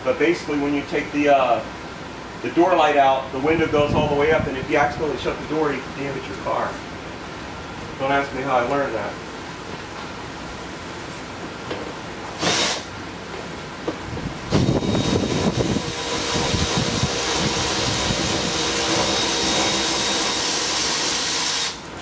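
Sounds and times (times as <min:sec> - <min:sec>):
cordless power driver whining: 0:12.4 - 0:12.9, 0:14.5 - 0:21.8.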